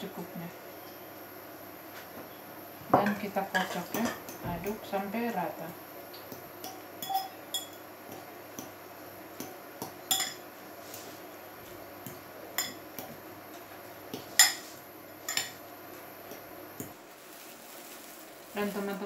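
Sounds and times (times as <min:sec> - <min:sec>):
fork clinking against ceramic bowl: 0:06.6 - 0:08.2, 0:10.1 - 0:10.4, 0:12.6 - 0:13.1, 0:15.3 - 0:15.6.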